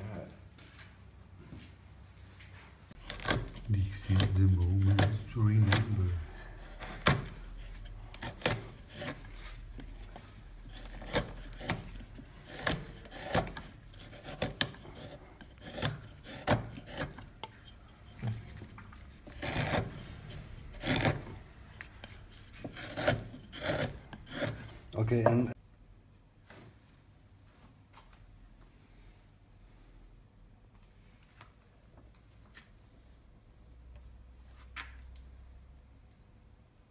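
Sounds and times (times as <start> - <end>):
chisel scraping through wood: 3.0 - 25.5.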